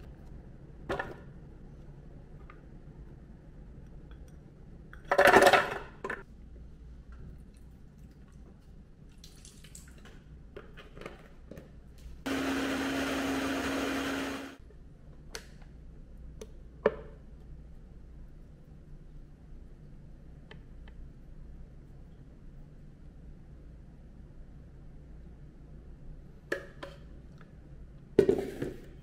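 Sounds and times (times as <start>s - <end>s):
blender motor whirring: 12.3s - 14.6s.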